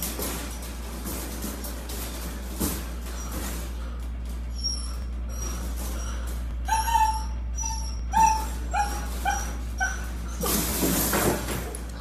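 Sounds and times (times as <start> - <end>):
puppy whimpering and yipping: 4.5 - 10.9.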